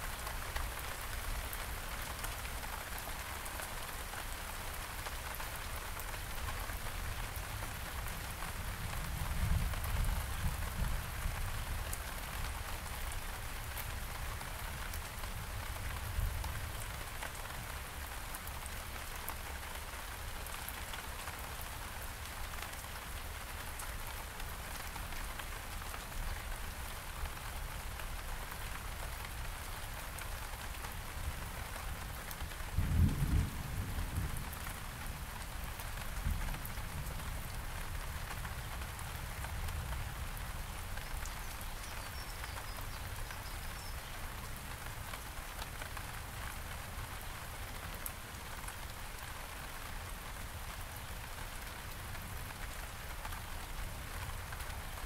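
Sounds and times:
steady rain falling: 0.0s - 55.0s
low rumble of thunder: 32.7s - 35.3s.

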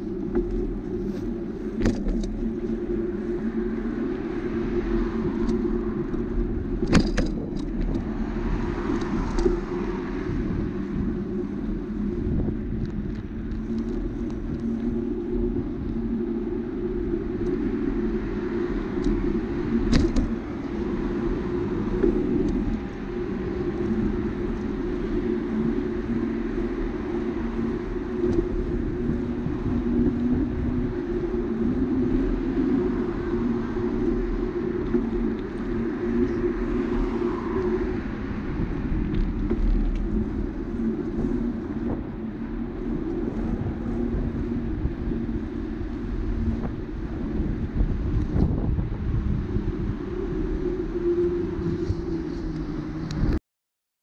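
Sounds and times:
bicycle rolling noise: 0.0s - 53.4s
wind: 0.0s - 53.4s.

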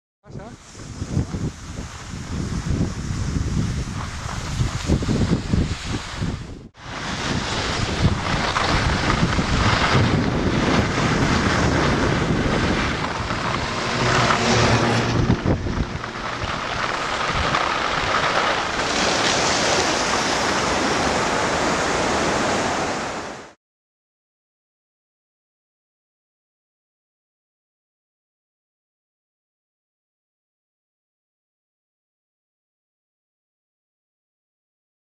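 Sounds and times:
wind buffeting microphone: 0.3s - 23.4s.

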